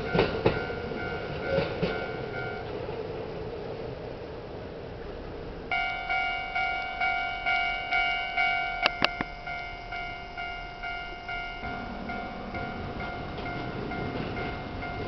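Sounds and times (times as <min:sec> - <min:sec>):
level crossing warning bell ringing: 0:00.0 - 0:02.8, 0:05.7 - 0:15.0.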